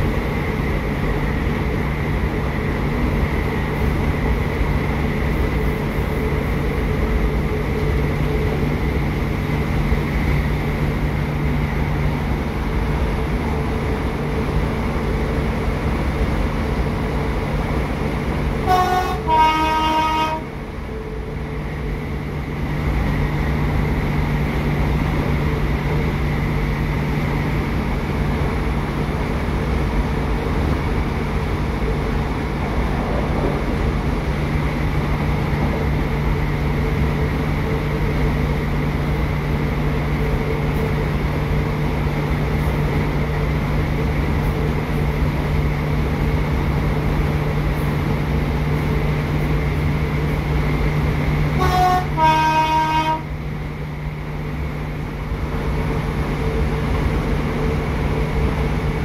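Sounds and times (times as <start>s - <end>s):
train engine and running gear drone: 0.0s - 59.0s
train horn: 18.6s - 20.6s, 51.5s - 53.3s.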